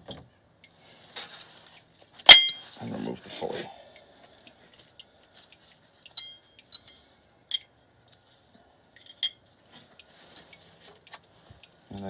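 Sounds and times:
metal bolts and tools clinking: 0:02.3 - 0:02.6, 0:09.0 - 0:09.4.

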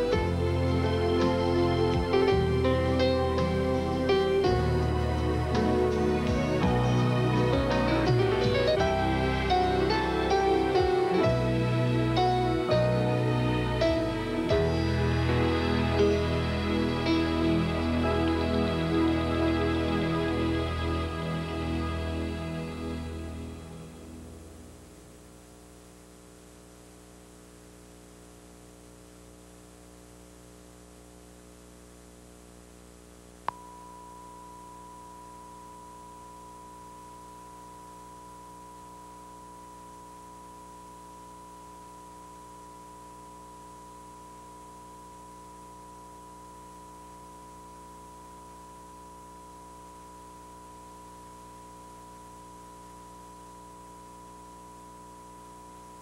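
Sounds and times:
faint low hum: 0:00.0 - 0:56.0
steady test tone: 0:33.5 - 0:56.0.

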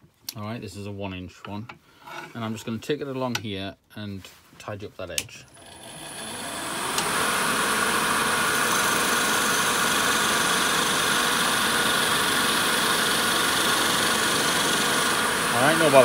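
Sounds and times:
chisel cutting spinning wood: 0:05.5 - 0:16.0
wood lathe humming: 0:05.5 - 0:16.0.

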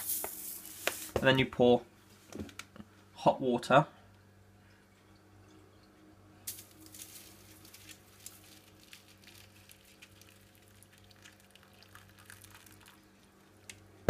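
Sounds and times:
water splashing on foil: 0:06.5 - 0:13.0.

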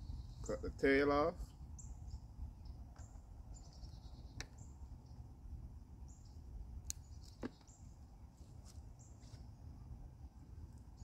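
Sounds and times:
faint bird chirps: 0:00.0 - 0:00.7, 0:01.4 - 0:05.3
low wind rumble: 0:00.0 - 0:11.0.

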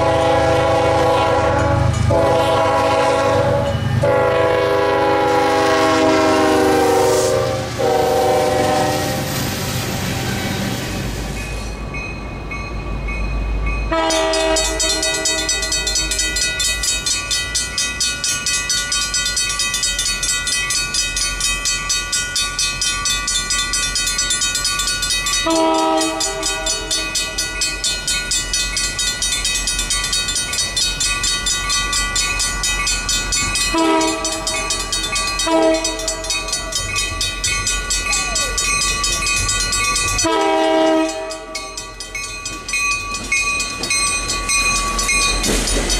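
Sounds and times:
train horn blasts: 0:00.0 - 0:09.3, 0:13.9 - 0:15.7, 0:25.4 - 0:27.0, 0:33.7 - 0:34.5, 0:35.4 - 0:36.3, 0:40.2 - 0:41.7
railroad crossing bell ringing: 0:00.0 - 0:45.9.

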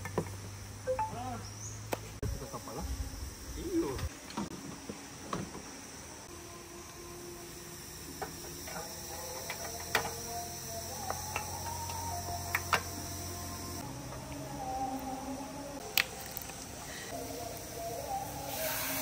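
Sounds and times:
high insect trilling: 0:06.4 - 0:13.9.

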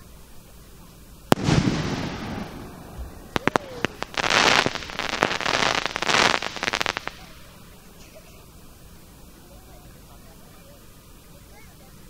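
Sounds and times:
dense firework crackling: 0:01.1 - 0:09.4
firework shells bursting: 0:01.3 - 0:07.8.

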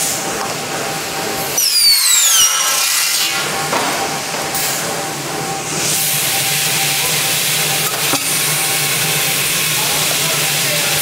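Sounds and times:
machine hum: 0:00.0 - 0:11.0
circular saw cutting metal: 0:01.5 - 0:03.7.

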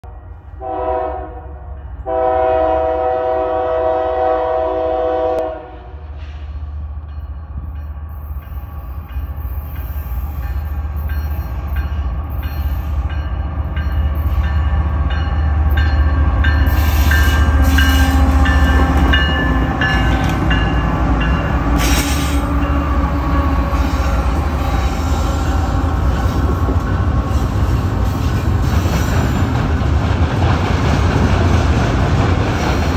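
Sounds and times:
locomotive horn blasts: 0:00.5 - 0:06.1.

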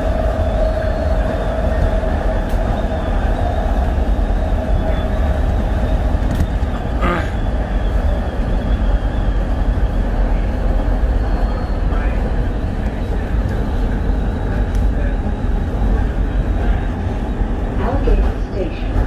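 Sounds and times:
train wheels rumbling on rail: 0:00.0 - 0:19.0.

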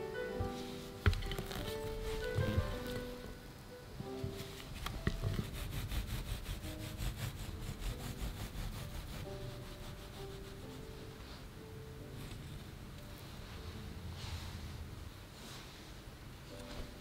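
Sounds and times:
serrated knife sawing cake: 0:05.3 - 0:10.8.

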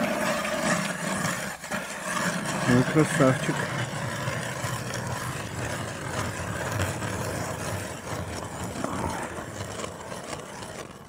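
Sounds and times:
ice auger grinding through ice: 0:00.0 - 0:11.0.

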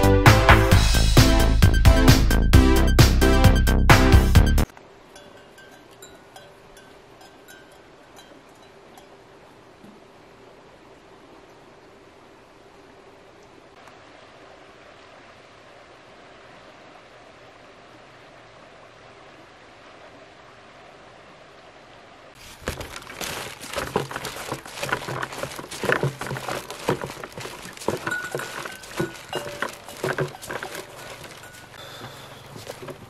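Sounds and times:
faint outdoor background: 0:00.0 - 0:33.0
carried gear knocking together: 0:22.4 - 0:33.0
footsteps: 0:22.4 - 0:33.0.

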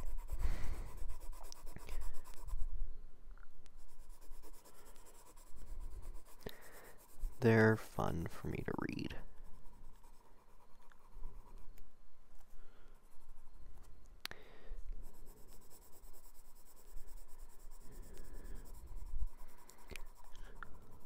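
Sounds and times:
pencil scratching on paper: 0:00.0 - 0:02.7, 0:03.8 - 0:11.8, 0:15.0 - 0:21.0.

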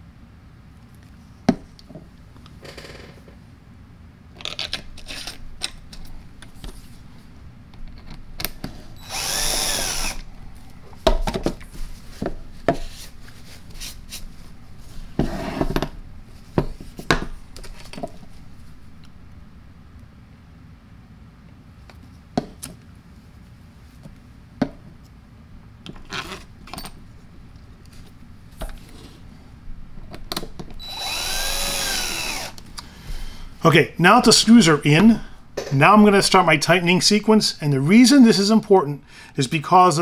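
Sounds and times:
cordless screwdriver running: 0:09.0 - 0:10.2, 0:30.8 - 0:32.6.

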